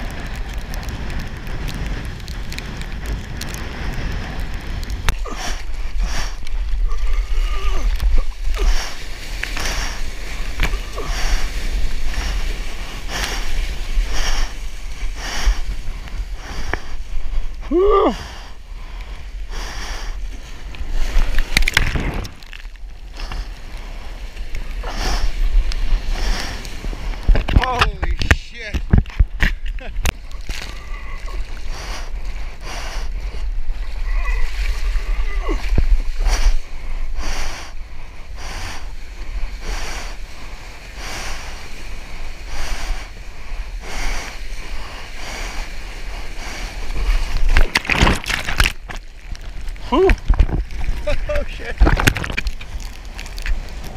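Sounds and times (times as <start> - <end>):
water splashing: 0.0 - 53.9
wind buffeting microphone: 0.0 - 53.9
water splash: 20.4 - 23.4.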